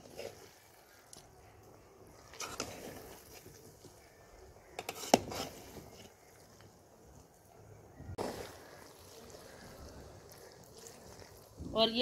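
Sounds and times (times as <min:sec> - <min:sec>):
metal spatula scraping a pot: 0:00.0 - 0:01.0, 0:02.2 - 0:06.4.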